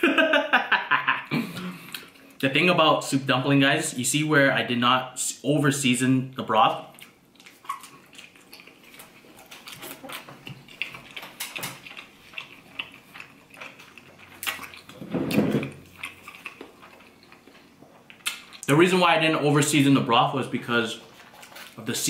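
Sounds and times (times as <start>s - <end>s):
wet chewing mouth clicks: 7.0s - 15.0s.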